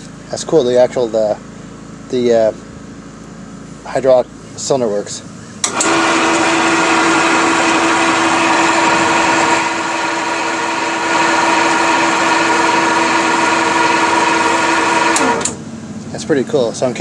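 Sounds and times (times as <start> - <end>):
bandsaw humming with high whine: 5.6 - 15.7.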